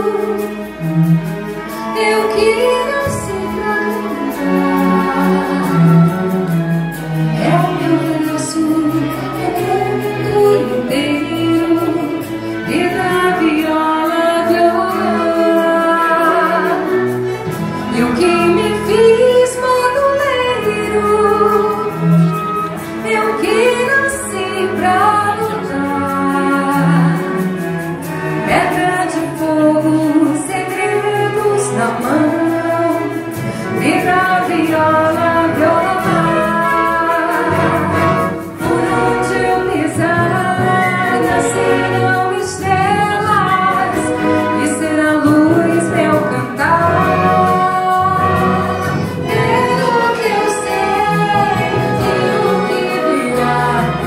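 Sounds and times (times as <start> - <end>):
symphony orchestra playing: 0.0 - 54.0
woman singing into microphone: 1.8 - 6.2, 7.3 - 17.2, 17.9 - 22.4, 23.0 - 27.4, 28.4 - 54.0.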